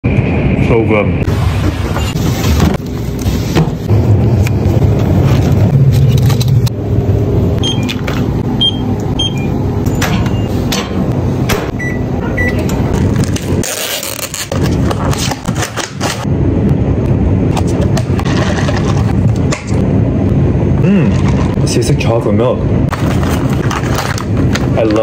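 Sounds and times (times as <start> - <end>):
microwave oven humming: 3.9 - 13.0
keypad beeps: 7.6 - 8.0, 8.6 - 10.5, 11.8 - 12.7.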